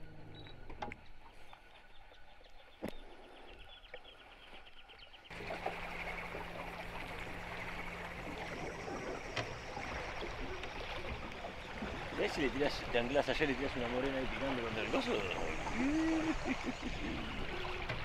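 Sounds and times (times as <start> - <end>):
river water: 0.0 - 18.0
low steady hum: 5.3 - 12.2.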